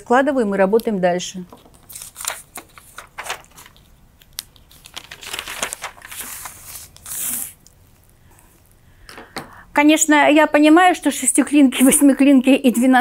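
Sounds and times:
paper rustling and crinkling: 1.5 - 7.6.

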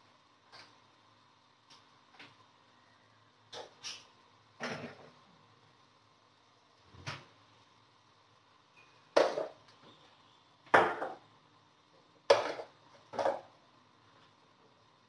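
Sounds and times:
kitchenware clattering: 3.7 - 5.1.

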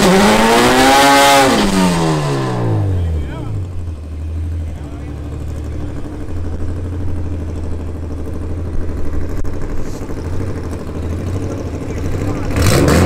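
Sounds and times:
car engine idling: 1.7 - 13.0.

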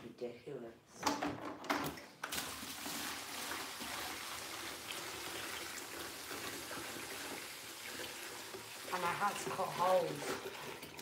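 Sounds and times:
water pouring into aquarium: 2.3 - 11.0.

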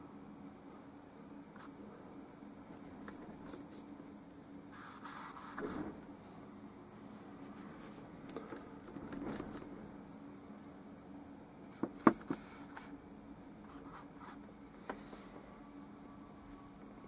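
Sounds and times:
paintbrush stroking on canvas: 4.7 - 6.0, 7.0 - 8.1.

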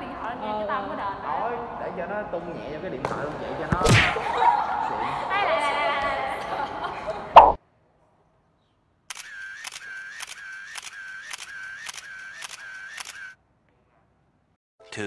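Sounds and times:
camera shutter clicks: 9.1 - 13.4.

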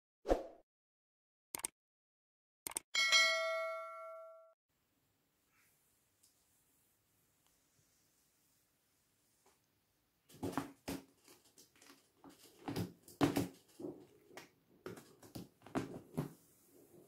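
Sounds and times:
cat paws tapping and scuffing: 10.3 - 16.4.

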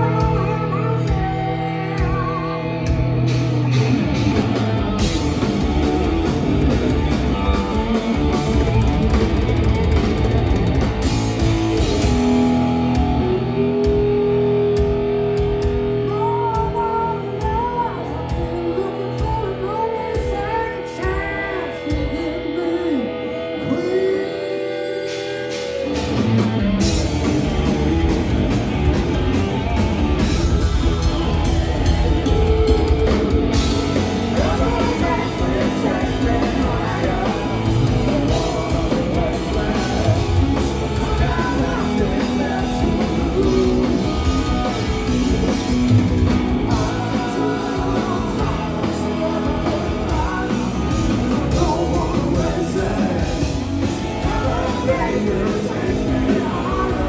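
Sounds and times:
person singing lead vocal: 0.0 - 4.4, 11.4 - 26.3, 32.4 - 57.0
drum kit: 0.0 - 19.5, 25.0 - 57.0
bass guitar: 0.0 - 57.0
electric guitar: 0.0 - 57.0.

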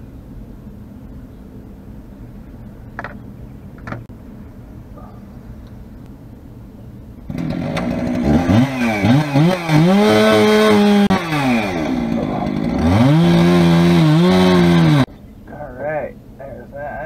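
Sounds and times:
chainsaw revving: 7.3 - 15.1.

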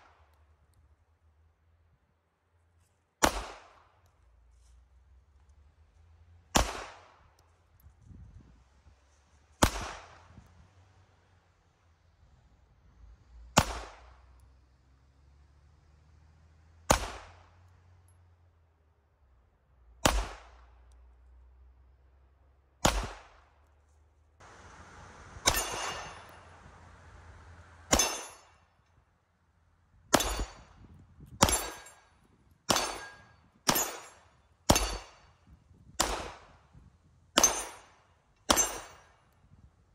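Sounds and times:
pistol shots with echo: 3.2 - 3.8, 6.5 - 7.2, 9.6 - 10.2, 20.0 - 20.6, 22.8 - 23.5, 25.4 - 26.3, 27.9 - 28.5, 30.1 - 30.7, 31.4 - 32.0, 32.7 - 35.2, 36.0 - 36.5, 37.4 - 37.9, 38.5 - 39.0.

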